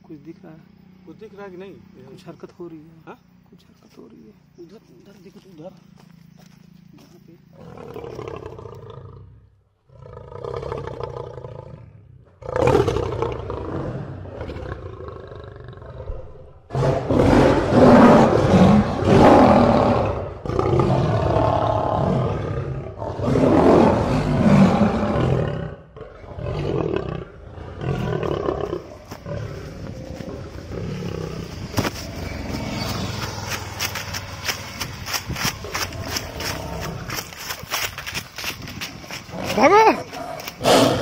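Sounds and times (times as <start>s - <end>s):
big cat roaring: 7.6s - 32.7s, 39.2s - 41.0s.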